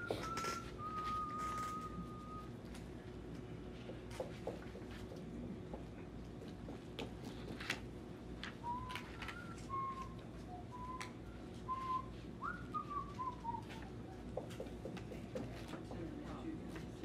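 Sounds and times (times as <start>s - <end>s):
person whistling a tune: 0.0s - 2.5s, 8.6s - 14.2s.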